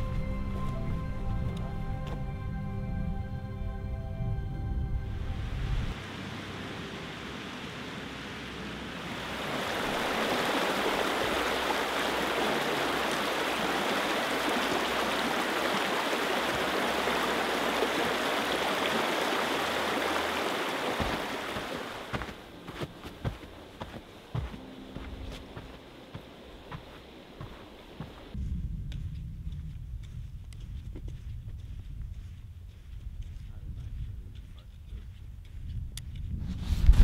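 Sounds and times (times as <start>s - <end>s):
stream water rushing: 5.9s - 28.4s.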